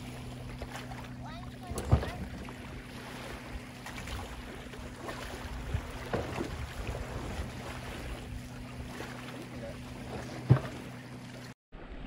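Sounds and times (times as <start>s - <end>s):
low hum: 0.0s - 12.0s
wind: 0.0s - 12.0s
footsteps on wooden dock: 3.8s - 11.0s.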